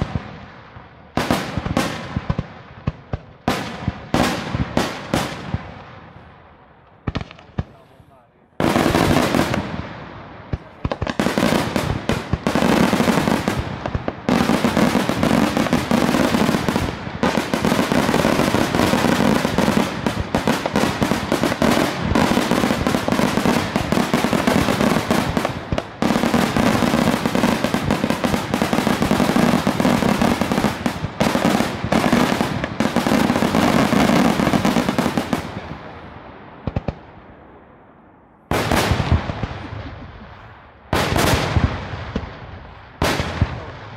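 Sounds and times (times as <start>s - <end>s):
firecracker reports: 7.4s - 9.1s, 10.5s - 11.3s.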